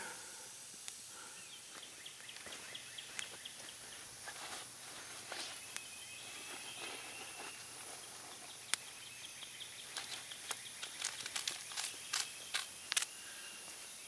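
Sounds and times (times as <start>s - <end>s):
steady outdoor hiss: 0.0s - 14.0s
faint high chirping: 5.3s - 14.0s.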